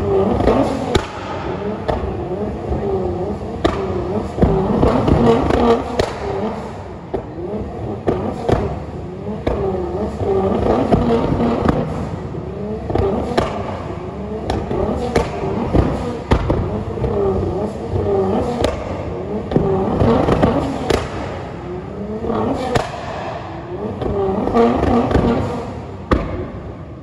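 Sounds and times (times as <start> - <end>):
car engine revving: 0.0 - 27.0.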